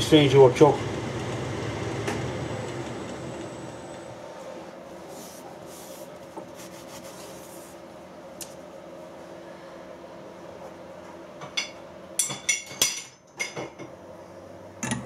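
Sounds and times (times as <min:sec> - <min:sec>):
low machine hum: 0:00.0 - 0:12.6
cloth rag rubbing on metal: 0:05.0 - 0:07.8.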